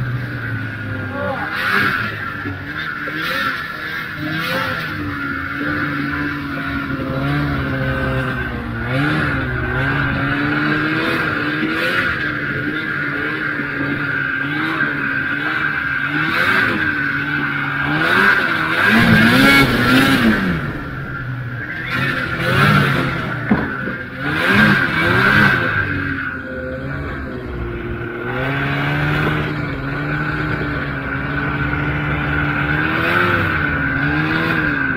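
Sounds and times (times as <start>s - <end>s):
steady high whine: 0.0s - 24.9s
snowmobile engine under load: 0.0s - 34.9s
rushing noise: 5.8s - 14.7s.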